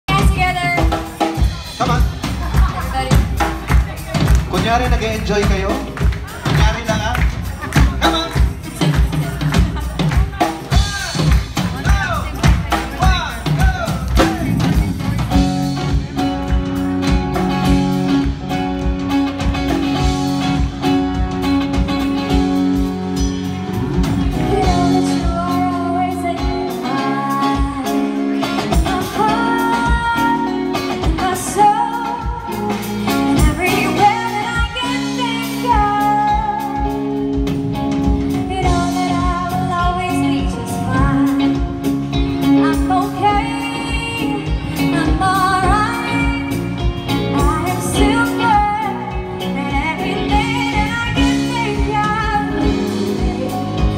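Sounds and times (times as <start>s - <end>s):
bass guitar: 0.0s - 53.9s
drum kit: 0.0s - 53.9s
electric guitar: 0.0s - 53.9s
woman singing: 24.3s - 37.5s, 38.2s - 53.9s.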